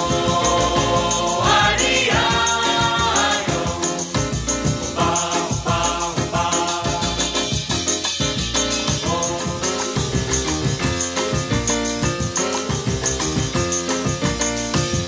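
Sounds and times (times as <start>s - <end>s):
song with beat and singing: 0.0s - 11.5s.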